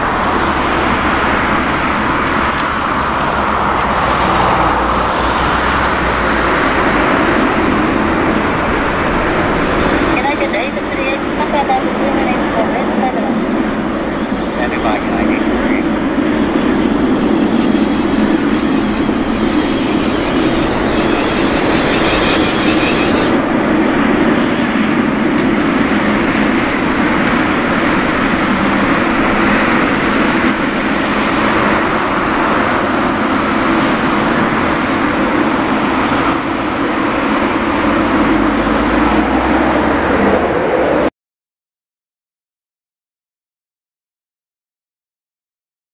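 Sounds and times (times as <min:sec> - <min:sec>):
jet engines rumbling: 0:00.0 - 0:41.1
high hiss: 0:16.8 - 0:23.4.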